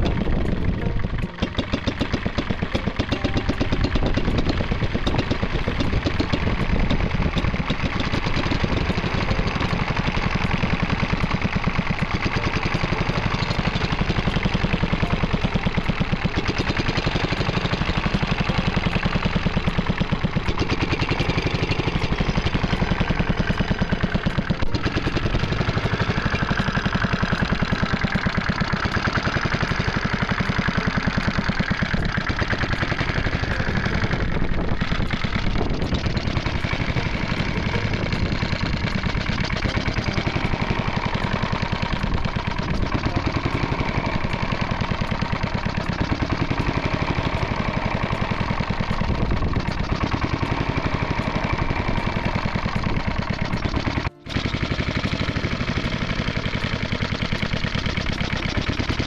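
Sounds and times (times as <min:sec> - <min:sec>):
stationary engine running: 0:00.0 - 0:59.0.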